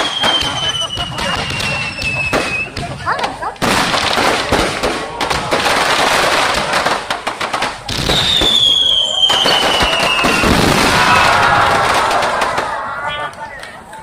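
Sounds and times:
fireworks crackling pops: 0:00.0 - 0:14.0
descending high whistle: 0:08.4 - 0:10.4.

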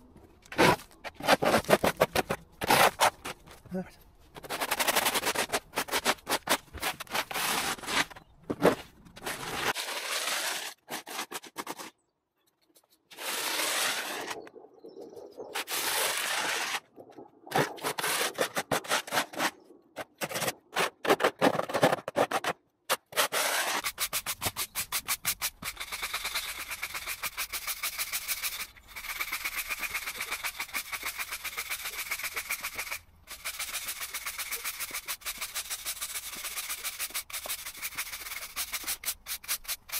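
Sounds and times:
yard brush scrubbing path: 0:23.3 - 0:39.9.

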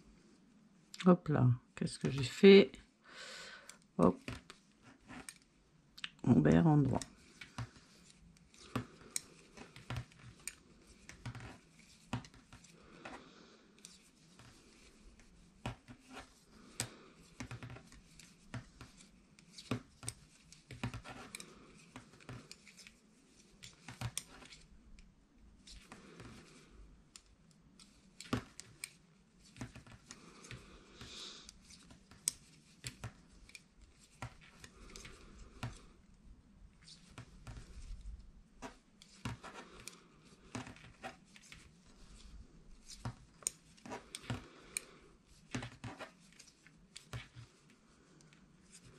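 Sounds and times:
knitting needles clicking: 0:27.1 - 0:35.8.

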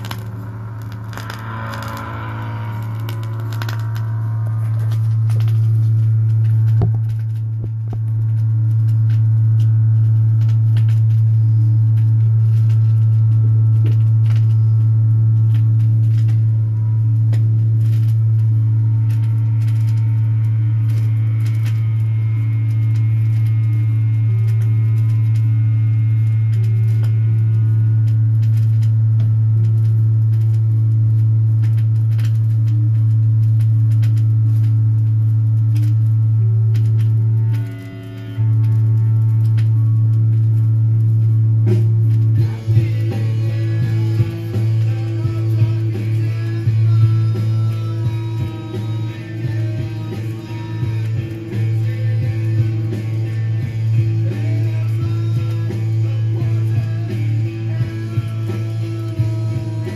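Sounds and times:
faint shifting notes: 0:00.0 - 0:08.7
low hum: 0:00.0 - 0:59.9.

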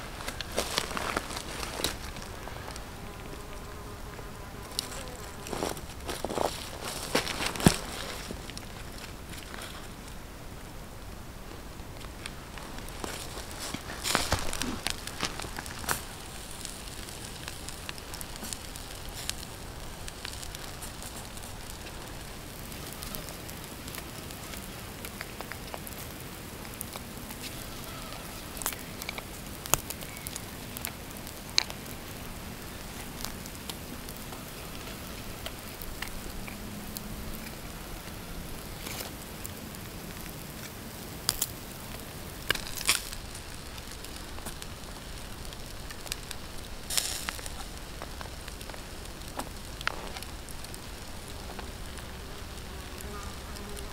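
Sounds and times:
campfire embers crackling: 0:00.0 - 0:53.9
sharp pops of fire: 0:12.8 - 0:37.6, 0:38.6 - 0:52.0
vegetables laid on grill clicks: 0:46.0 - 0:50.8.

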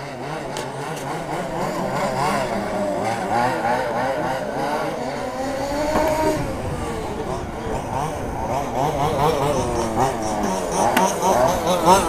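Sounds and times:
model race truck motors: 0:00.0 - 0:12.0.

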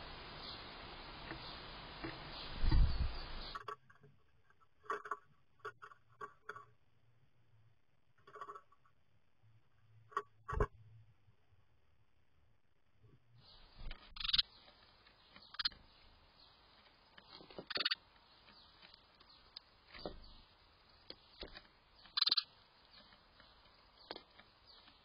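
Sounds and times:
sparrows chirping: 0:00.0 - 0:03.8, 0:13.4 - 0:25.0.

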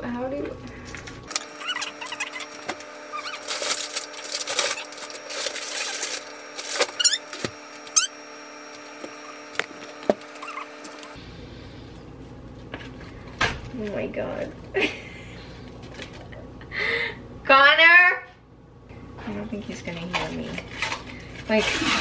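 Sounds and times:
plastic packaging crinkling: 0:01.3 - 0:08.1
short high squeaks: 0:01.4 - 0:03.8, 0:04.5 - 0:08.2, 0:10.3 - 0:11.2.

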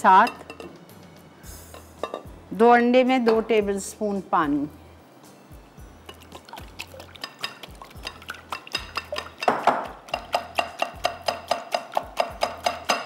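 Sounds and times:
utensil clinking against bowl: 0:06.0 - 0:13.0.

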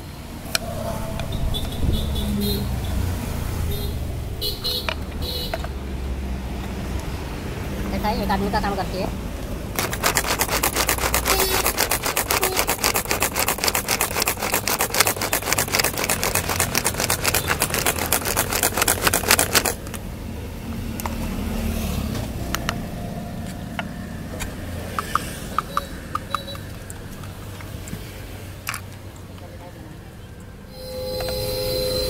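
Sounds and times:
onion chopper rattling: 0:09.7 - 0:20.0.

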